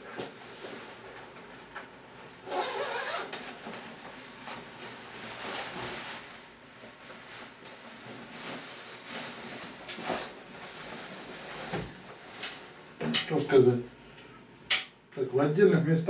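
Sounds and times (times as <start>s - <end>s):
jacket zipper being pulled open: 2.4s - 3.4s
jacket fabric rustling: 2.4s - 13.7s.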